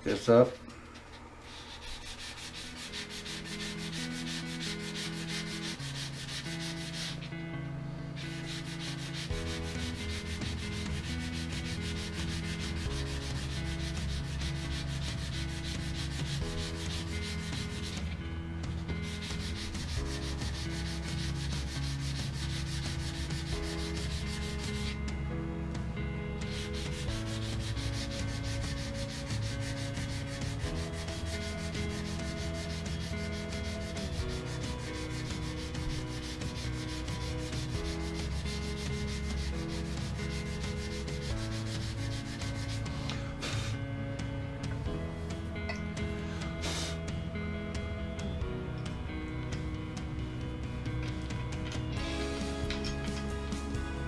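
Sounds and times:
sandpaper rubbing on wood: 1.4 - 7.3, 8.2 - 25.0, 26.4 - 43.8, 46.6 - 47.0.

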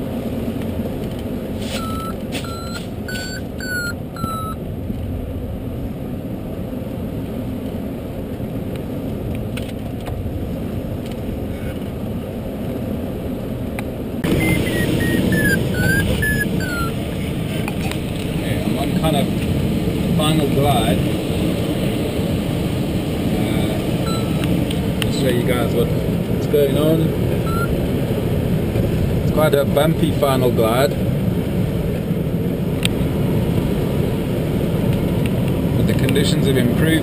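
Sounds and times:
variometer beeping: 1.8 - 4.6, 14.2 - 17.0, 24.0 - 24.6, 27.4 - 27.8.

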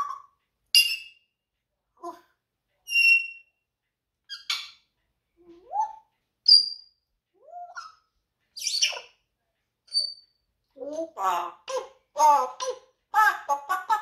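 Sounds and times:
parrot whistling and squawking: 0.0 - 1.2, 2.9 - 3.5, 4.3 - 4.8, 5.6 - 9.2.

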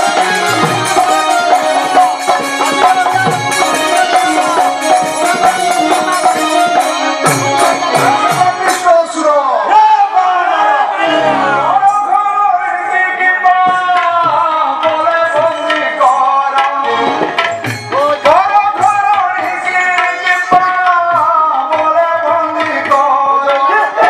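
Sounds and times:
sliding melody: 0.0 - 9.5.

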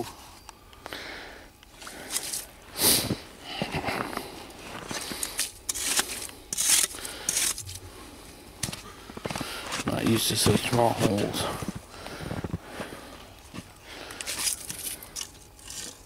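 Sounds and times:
ice skimmer scraping ice: 4.6 - 7.8.

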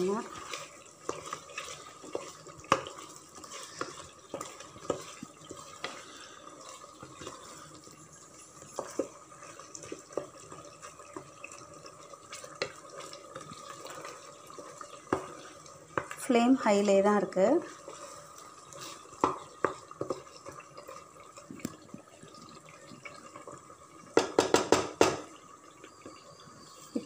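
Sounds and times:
wooden spatula scraping a pot: 0.0 - 21.1
chicken simmering and bubbling in oil: 0.0 - 27.0.

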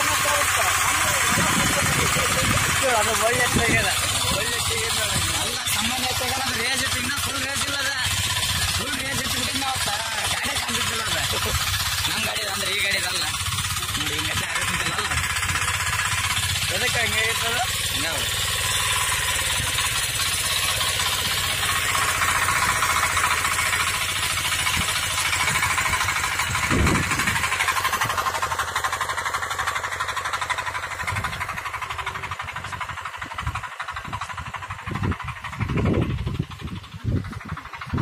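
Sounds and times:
diesel engine chugging under load: 0.0 - 38.0.

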